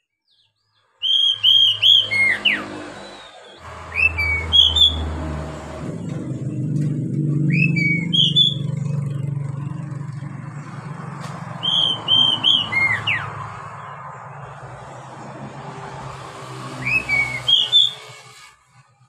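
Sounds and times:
bird singing whistled notes: 0:00.2 - 0:05.2, 0:07.5 - 0:08.8, 0:11.6 - 0:13.3, 0:16.8 - 0:18.1
low engine-like drone: 0:01.7 - 0:18.6.

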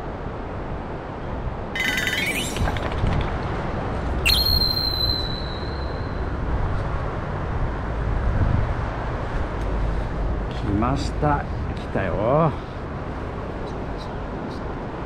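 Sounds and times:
thin high whistle: 0:01.8 - 0:02.6, 0:04.2 - 0:06.3.

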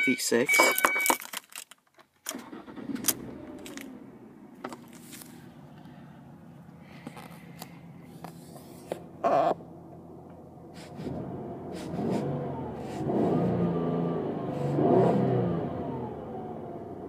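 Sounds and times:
car engine revving: 0:02.4 - 0:17.0.

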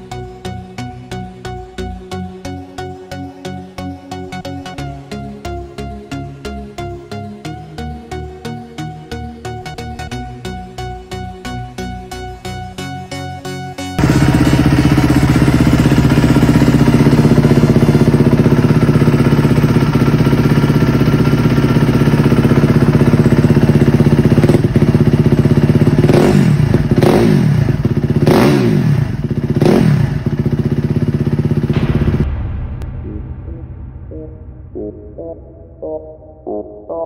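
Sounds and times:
dirt bike engine idling: 0:14.0 - 0:32.1.

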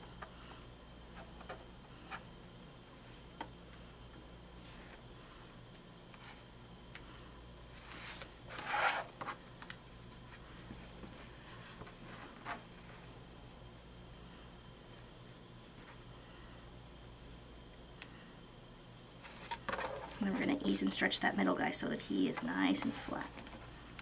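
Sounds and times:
fabric rubbing: 0:07.9 - 0:09.1.

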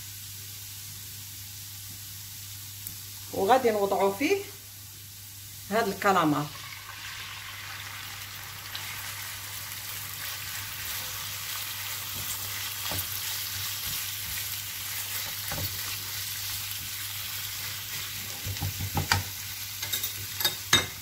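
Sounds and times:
squid sizzling in oil: 0:00.0 - 0:21.0
spatula knocking on pan: 0:18.4 - 0:19.3.

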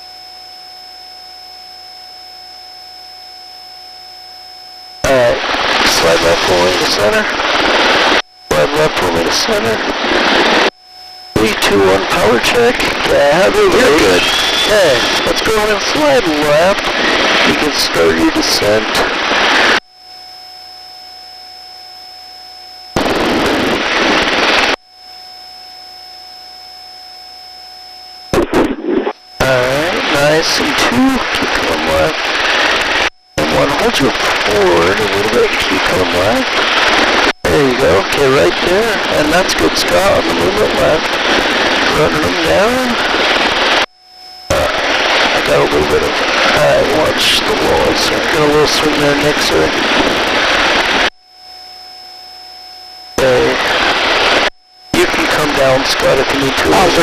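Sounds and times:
faint whining tones: 0:00.0 - 0:57.0
intercom background hum: 0:00.0 - 0:57.0
open microphone rush of noise: 0:04.0 - 0:57.0
loud crackling bursts: 0:05.0 - 0:19.8, 0:22.9 - 0:24.8, 0:28.2 - 0:51.2, 0:53.1 - 0:57.0
steady hiss: 0:28.4 - 0:43.9, 0:53.2 - 0:57.0.

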